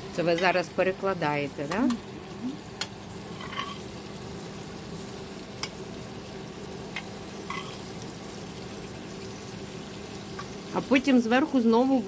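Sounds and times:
vegetables sizzling in oil: 0.0 - 12.0
utensil clicking against pan: 1.7 - 2.0, 2.8 - 3.0.

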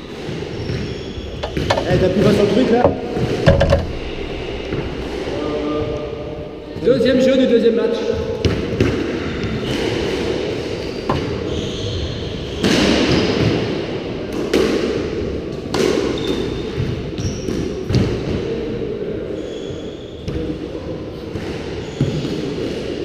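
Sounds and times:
squash ball bouncing: 0.1 - 4.1
shoes squeaking on wooden floor: 0.5 - 3.7.

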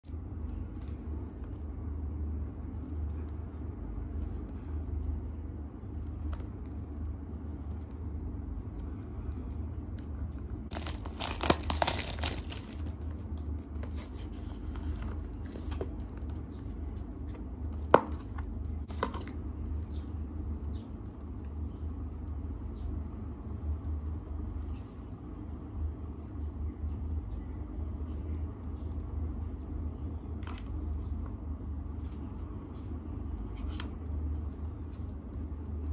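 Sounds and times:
steady low hum: 0.0 - 35.9
packaging rustling and tearing: 10.7 - 15.9.

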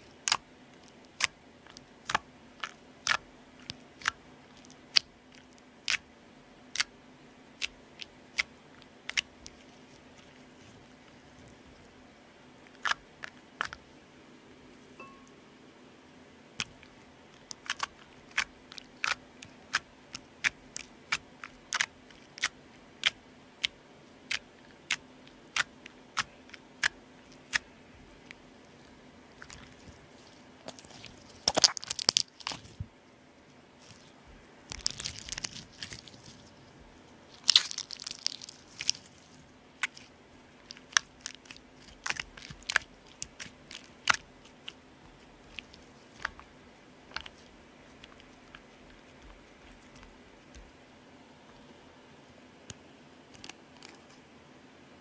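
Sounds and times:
slime crackling: 0.2 - 6.0, 12.7 - 13.8, 16.6 - 32.8, 33.8 - 36.6, 37.3 - 50.8.

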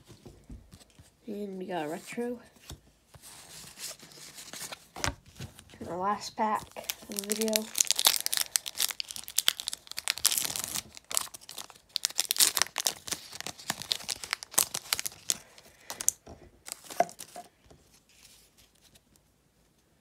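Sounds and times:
plastic wrapper tearing and crinkling: 6.4 - 17.5.

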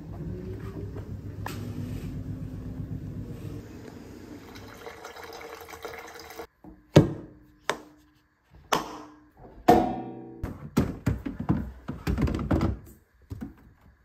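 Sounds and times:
clothes dryer running: 0.0 - 6.4.

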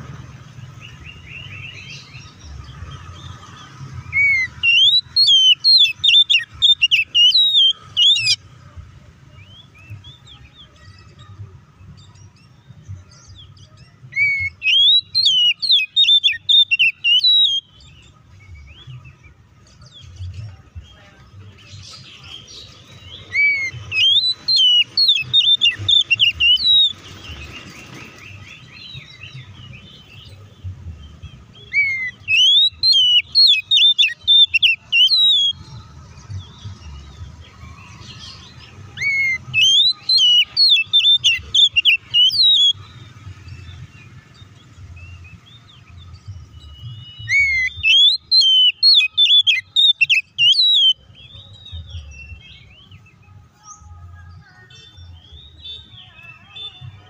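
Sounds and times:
bird singing whistled notes: 0.5 - 8.5, 9.3 - 57.0.

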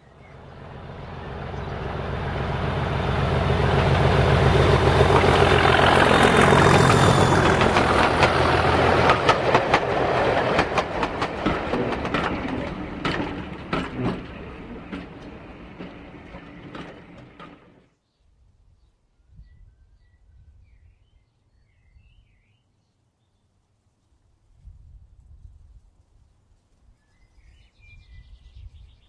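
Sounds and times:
model train hum: 0.0 - 17.8
wheels clicking over rail joints: 0.1 - 17.8.

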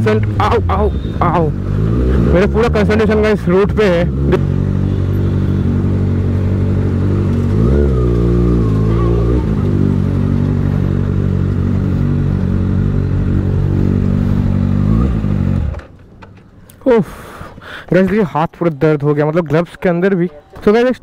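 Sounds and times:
motorcycle engine running: 0.0 - 15.9.

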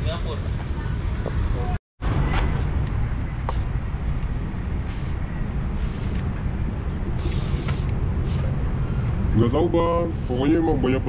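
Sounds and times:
low rumble of road traffic: 0.0 - 11.0
aerosol spray can hissing: 4.8 - 6.2, 7.2 - 8.5.

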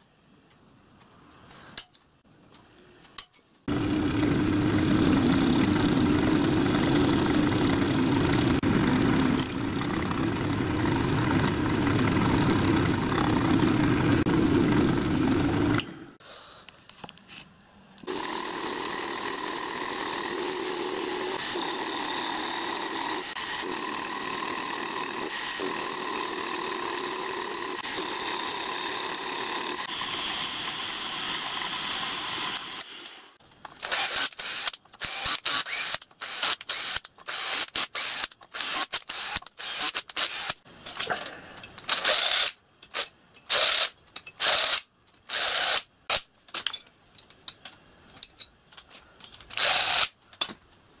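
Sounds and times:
cordless drill short bursts: 33.8 - 40.6, 41.9 - 42.6, 43.5 - 45.9, 49.6 - 50.2.

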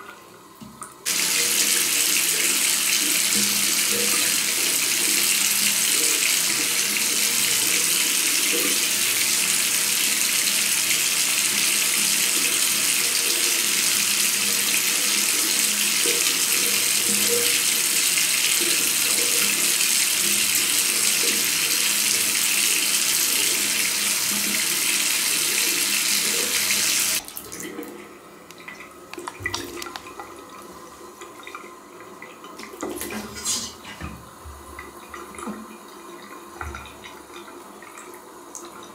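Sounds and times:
water running into bowl: 1.1 - 30.8.

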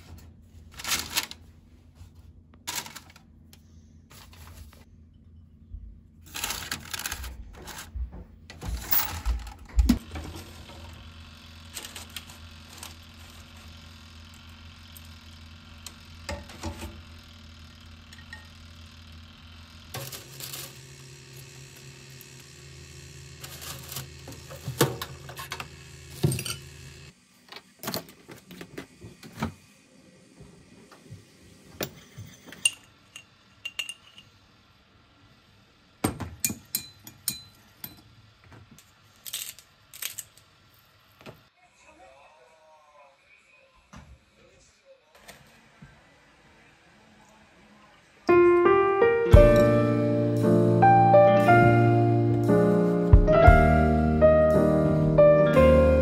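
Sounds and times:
steady low hum: 0.0 - 27.2.

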